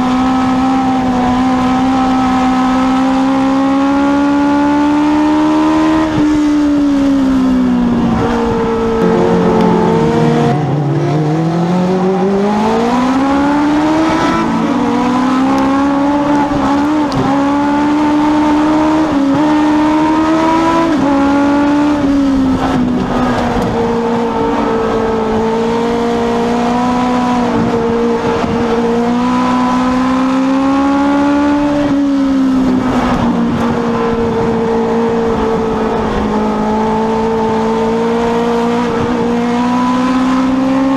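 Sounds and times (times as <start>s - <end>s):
race car engine at racing speed: 0.0s - 40.9s.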